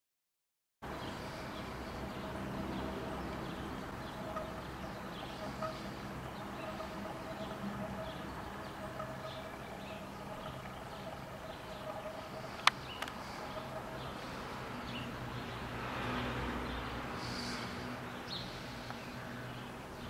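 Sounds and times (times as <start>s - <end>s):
faint bird chirps: 3.5s - 15.2s.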